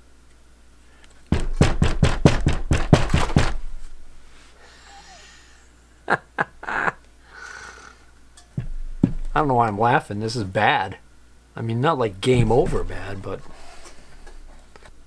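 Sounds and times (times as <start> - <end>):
metal motor knocking on wooden bench: 1.3 - 3.6, 8.6 - 9.4.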